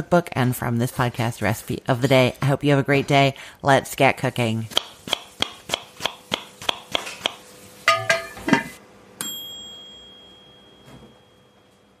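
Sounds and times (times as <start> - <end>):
bright bell ding: 9.2 - 11.8.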